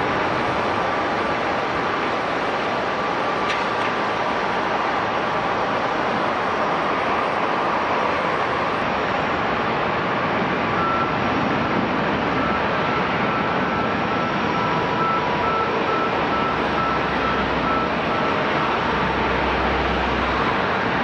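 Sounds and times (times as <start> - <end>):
aircraft engine roar: 0.0 - 21.0
reversing alarm beeping: 12.3 - 19.2.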